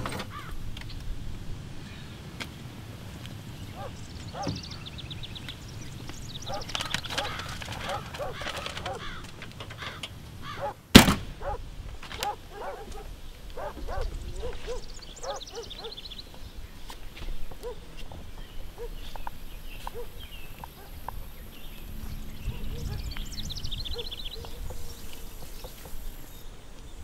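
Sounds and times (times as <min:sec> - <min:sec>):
birds chirping: 0:00.0 - 0:27.0
sharp bang: 0:10.9 - 0:11.4.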